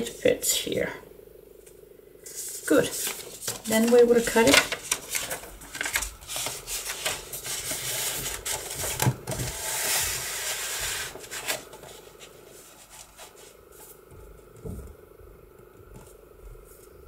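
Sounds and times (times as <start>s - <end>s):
paper rustling and rubbing: 2.2s - 14.6s.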